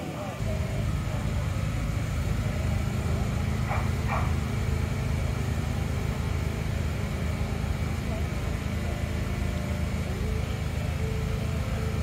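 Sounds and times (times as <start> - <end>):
steady low rumble: 0.3 - 12.0
dog barking: 3.6 - 4.5.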